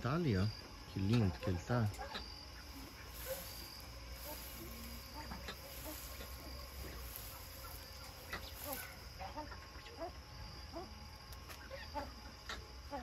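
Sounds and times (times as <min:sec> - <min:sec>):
insects humming: 0:00.0 - 0:13.0.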